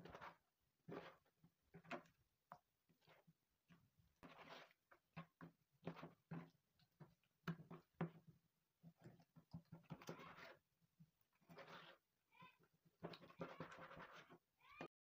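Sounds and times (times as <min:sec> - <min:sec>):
knife scraping cutting strokes: 0:04.2 - 0:04.8, 0:11.5 - 0:12.0, 0:13.3 - 0:14.4.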